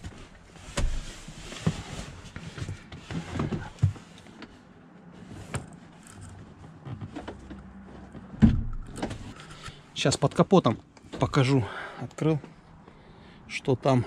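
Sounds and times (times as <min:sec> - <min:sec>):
knocks and clicks of movement: 0:05.5 - 0:11.4
heavy thump: 0:08.4 - 0:09.2.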